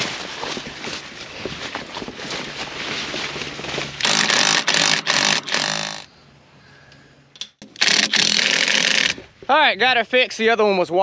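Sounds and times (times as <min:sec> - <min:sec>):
scratchy scuffing noise: 0:00.0 - 0:04.0
impact wrench hammering bolts: 0:04.0 - 0:06.0, 0:07.4 - 0:09.2.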